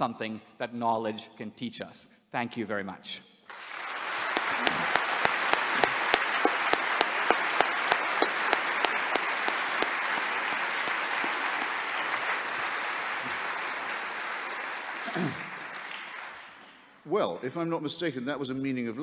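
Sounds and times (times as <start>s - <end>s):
audience applauding: 3.5s - 16.9s
close claps: 3.5s - 16.9s.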